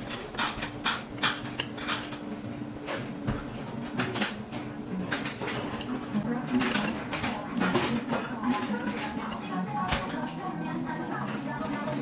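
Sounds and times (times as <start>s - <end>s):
metal utensils clinking on dishes: 0.0s - 2.3s, 3.8s - 12.0s.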